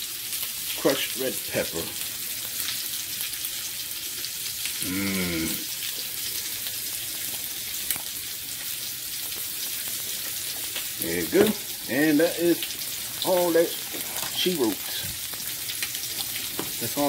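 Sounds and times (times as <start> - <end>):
pot of water boiling: 0.0 - 17.0
person humming: 4.8 - 5.6.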